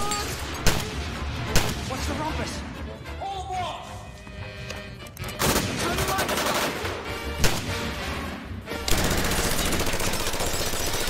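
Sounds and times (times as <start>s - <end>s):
background music: 0.0s - 11.0s
rapid automatic gunfire: 5.4s - 6.9s, 8.8s - 11.0s
single gunshots: 7.4s - 7.9s.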